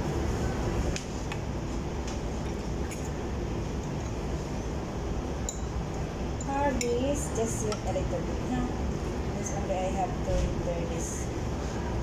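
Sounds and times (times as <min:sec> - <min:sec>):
restaurant room noise: 0:00.0 - 0:12.0
metal spoon clinking glass bowl: 0:05.4 - 0:05.8.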